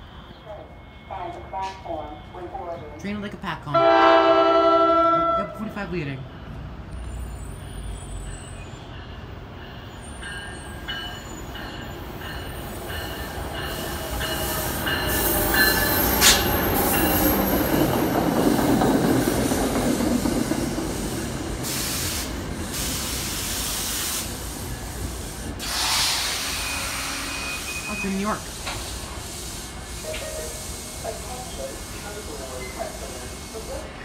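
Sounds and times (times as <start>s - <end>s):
train rumbling past: 0.0s - 34.0s
high wheel squeal: 7.0s - 9.0s, 25.7s - 28.3s.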